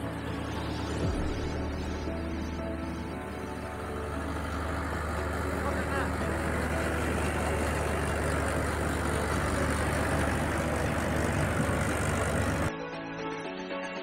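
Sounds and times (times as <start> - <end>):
threshing machine rushing noise: 0.0 - 12.7
tractor diesel engine droning: 0.0 - 12.8.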